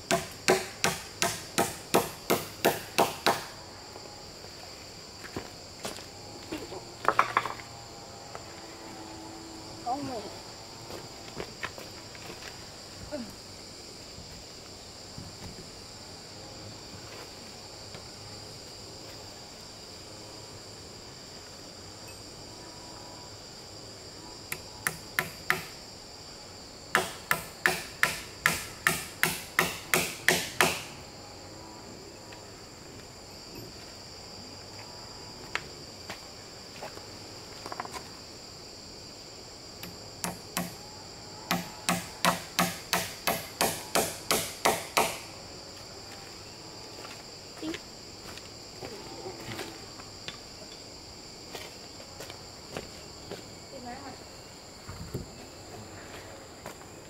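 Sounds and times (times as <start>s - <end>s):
high-pitched insect drone: 0.0s - 57.0s
hammer striking log wall: 0.1s - 3.5s, 24.8s - 25.8s, 26.9s - 30.9s, 39.8s - 40.8s, 41.5s - 45.3s.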